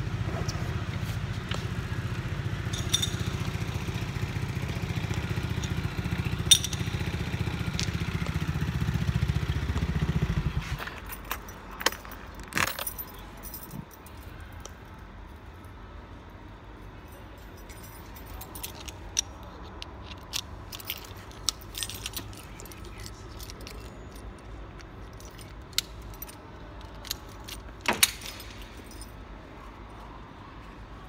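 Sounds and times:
keys jangling: 2.7 - 8.7, 10.7 - 15.5, 16.8 - 30.1.

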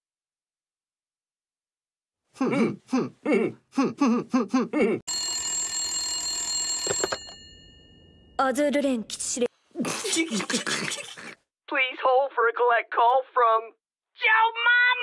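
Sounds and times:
telephone metal bell ringing: 5.1 - 8.4
warbling telephone rings: 5.1 - 8.4.

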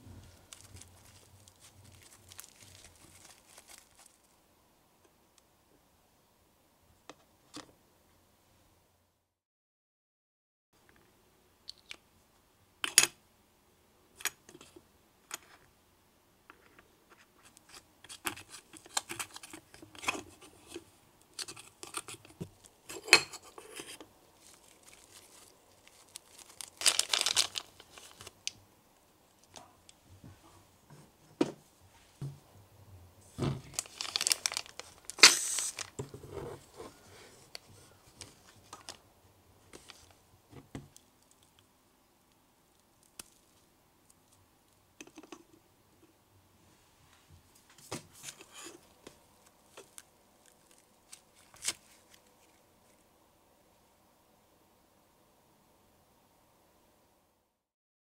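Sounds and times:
sticky dough crackling and tearing: 0.4 - 4.3, 24.4 - 28.5, 33.7 - 36.0, 49.4 - 53.0.

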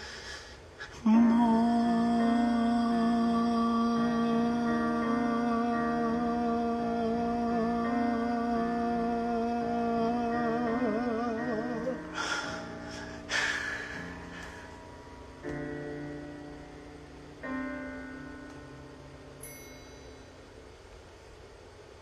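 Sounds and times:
piano chords: 0.0 - 22.0
man singing with vibrato: 0.8 - 12.9
soft accompaniment: 1.0 - 22.0.

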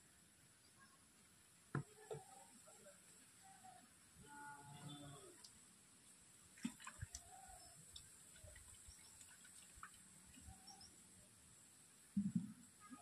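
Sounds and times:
faint bird chirps: 3.4 - 5.5, 7.2 - 9.2, 10.4 - 11.0.

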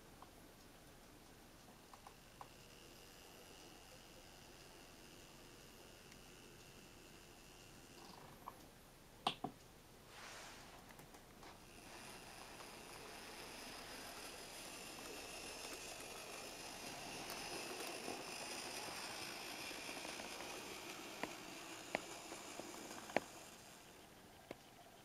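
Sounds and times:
sharp clicks: 0.9 - 2.6
model train motor whine: 1.6 - 8.5, 11.4 - 25.0.

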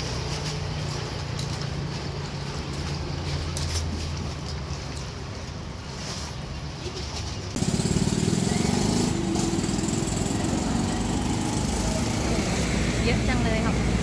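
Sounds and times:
small engine running: 7.6 - 14.0.

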